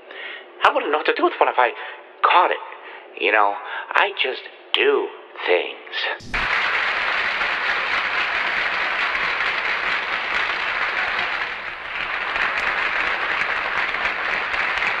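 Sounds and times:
audience applause: 0:06.2 - 0:15.0.

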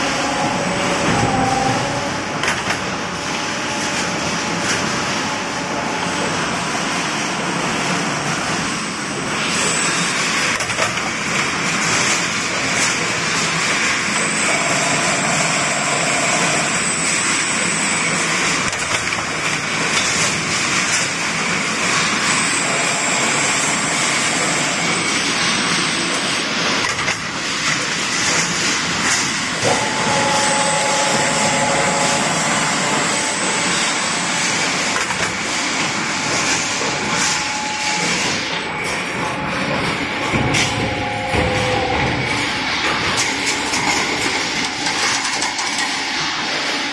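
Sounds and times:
faint machine whines: 0:13.9 - 0:18.8, 0:28.2 - 0:46.9.

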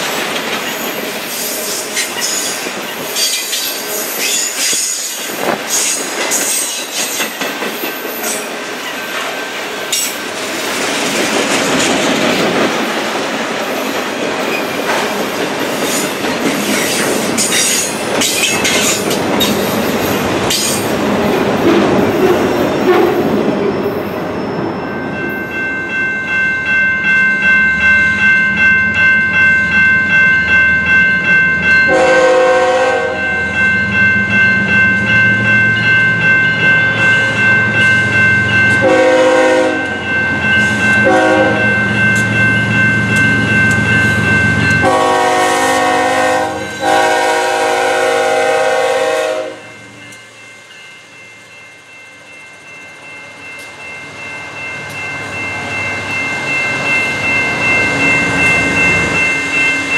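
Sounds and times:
freight train wheels clacking: 0:00.0 - 0:24.3, 0:30.9 - 0:50.6
crossing bell ringing: 0:00.0 - 0:59.9
diesel locomotives rumbling: 0:00.0 - 0:59.9
locomotive horn blasts: 0:31.9 - 0:33.2, 0:38.8 - 0:40.0, 0:41.0 - 0:41.7, 0:44.8 - 0:49.7.

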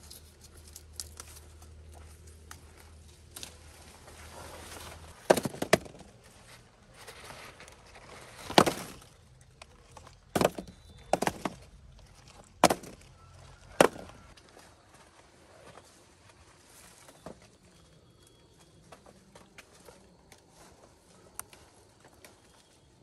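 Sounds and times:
hand tool striking bamboo: 0:12.6 - 0:13.0, 0:13.8 - 0:14.1.

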